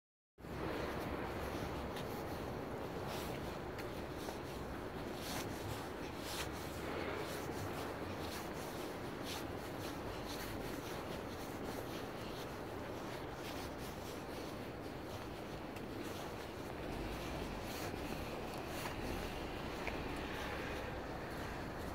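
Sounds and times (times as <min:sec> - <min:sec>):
steady outdoor hum: 0:00.4 - 0:21.9
rubbing against microphone: 0:01.4 - 0:21.9.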